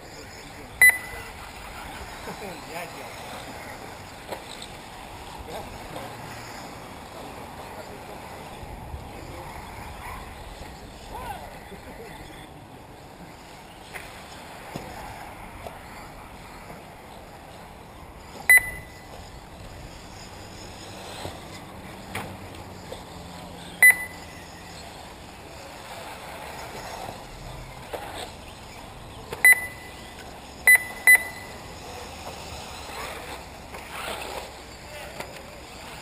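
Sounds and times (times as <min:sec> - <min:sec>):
steady background noise: 0:00.0 - 0:36.0
short high electronic beeps: 0:00.8 - 0:01.2, 0:18.5 - 0:19.0, 0:23.8 - 0:24.4, 0:29.4 - 0:30.0, 0:30.7 - 0:31.6.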